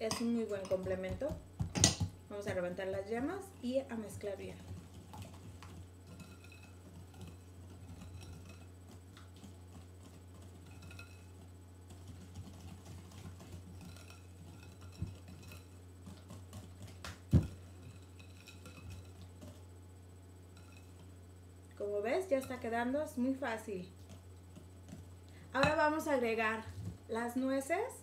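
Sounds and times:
steady low hum: 0.0 - 28.0
utensil scraping glass bowl: 2.4 - 19.7, 20.5 - 21.1
knock on bowl: 25.6 - 25.8.

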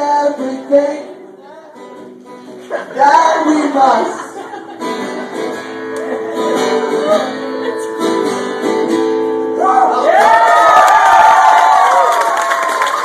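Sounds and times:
acoustic guitar strumming chords: 0.0 - 10.0
crowd cheering and whooping: 9.6 - 13.0.

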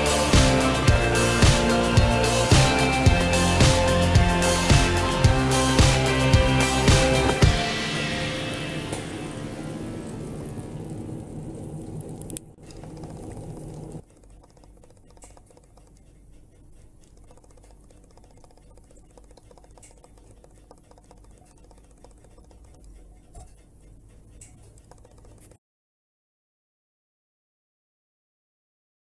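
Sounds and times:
background music: 0.0 - 10.9
low hum: 0.0 - 14.6.

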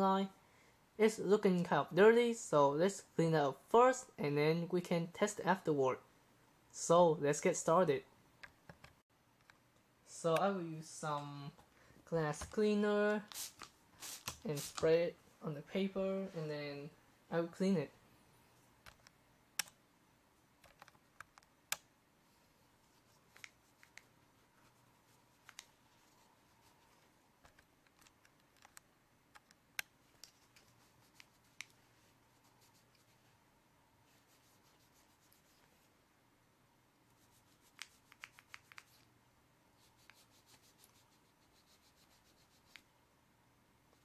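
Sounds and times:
paper towel crinkling: 13.2 - 14.9
sharp clicks: 18.8 - 19.8.

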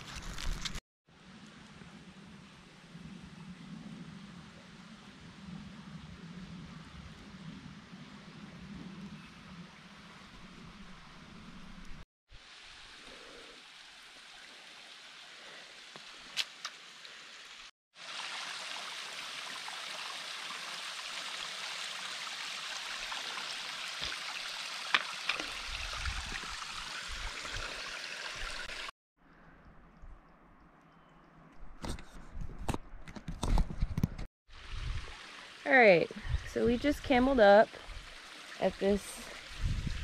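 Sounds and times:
creek water running over stones: 12.3 - 28.9, 34.5 - 40.0.

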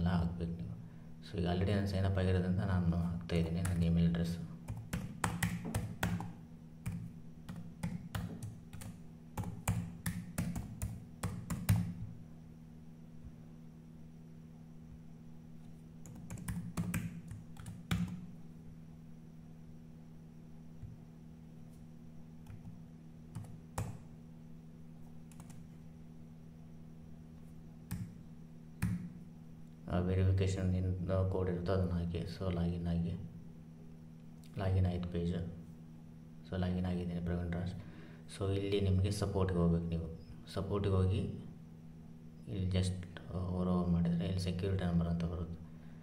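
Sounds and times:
faint steady hum: 0.0 - 46.0
typing on keyboard: 4.7 - 6.3, 6.9 - 11.9, 16.0 - 18.2, 25.3 - 25.6
laptop keystrokes: 4.7 - 12.1, 16.0 - 18.2, 25.3 - 25.6, 27.9 - 28.2.

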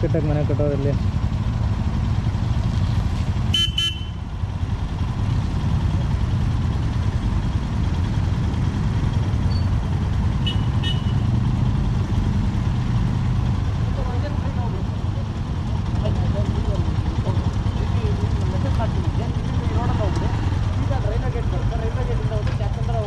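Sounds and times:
motorcycle engines rumbling: 0.0 - 23.0
horn beeps: 3.5 - 4.2, 10.4 - 11.4.

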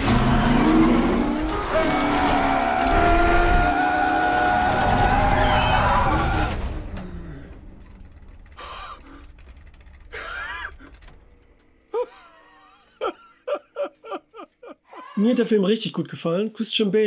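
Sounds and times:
race car engine: 0.0 - 11.9.

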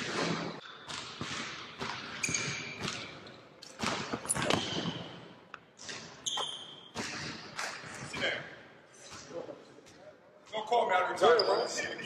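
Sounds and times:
sneakers squeaking on court: 0.0 - 8.2, 11.2 - 12.0
basketball bouncing on hardwood floor: 0.9 - 3.1, 3.7 - 5.0.

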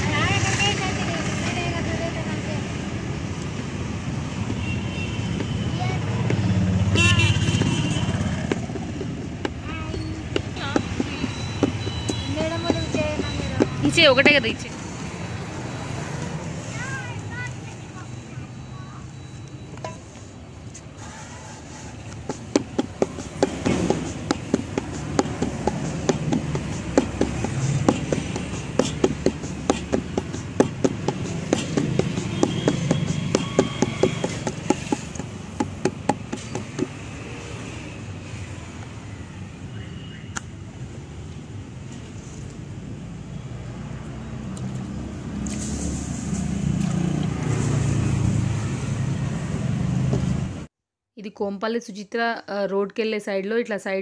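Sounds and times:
steady low traffic rumble: 0.0 - 50.7
motor vehicle engine running: 21.8 - 37.1
hands slapping dough: 22.2 - 36.9.

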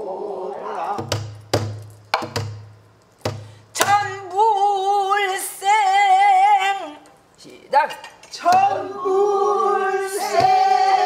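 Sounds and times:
singer breathing: 3.3 - 3.8
woman singing with vibrato: 3.8 - 7.1, 8.3 - 11.0.

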